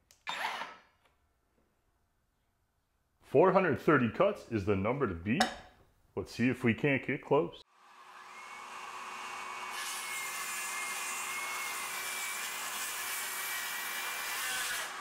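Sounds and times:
circular saw cutting wood: 0:07.7 - 0:15.0.

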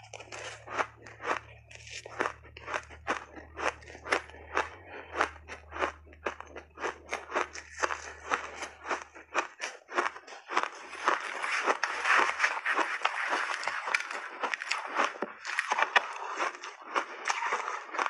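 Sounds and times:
chewing crunchy ice: 0:00.0 - 0:18.0.

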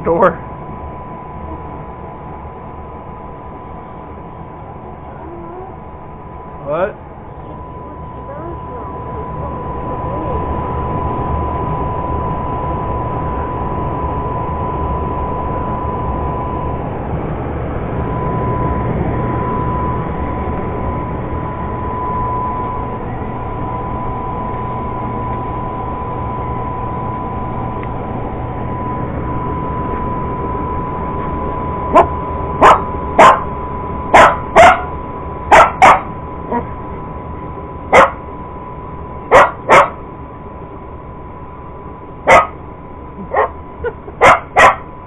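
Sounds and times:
high whine: 0:00.0 - 0:45.0
hum and hiss: 0:00.0 - 0:45.0
dog barking sharply: 0:32.0 - 0:33.4, 0:34.2 - 0:34.9, 0:35.5 - 0:36.1, 0:38.0 - 0:38.2, 0:39.3 - 0:40.0, 0:42.3 - 0:42.5, 0:44.2 - 0:44.8.

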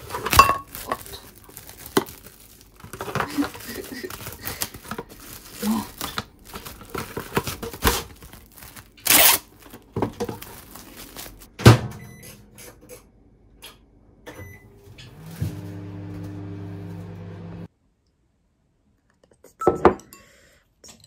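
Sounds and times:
cling wrap crinkling: 0:00.0 - 0:11.5
microwave running hum: 0:11.5 - 0:17.7
microwave keypad beeps: 0:12.0 - 0:12.4, 0:14.3 - 0:14.8.

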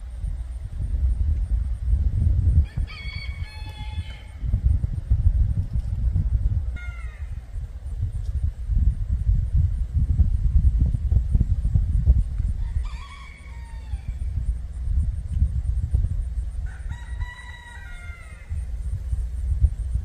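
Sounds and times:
rooster crowing: 0:02.6 - 0:04.5, 0:06.8 - 0:07.4, 0:12.5 - 0:14.4, 0:16.6 - 0:18.7.

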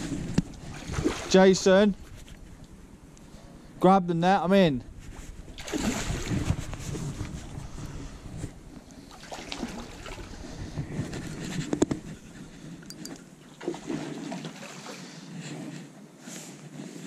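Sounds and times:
water splashing: 0:00.0 - 0:01.9, 0:05.5 - 0:07.4, 0:09.0 - 0:11.4, 0:13.4 - 0:15.2.

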